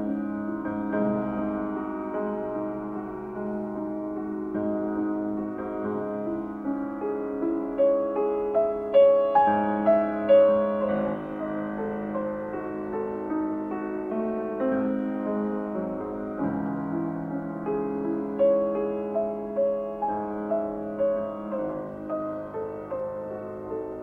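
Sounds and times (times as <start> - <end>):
piano music: 0.0 - 24.0.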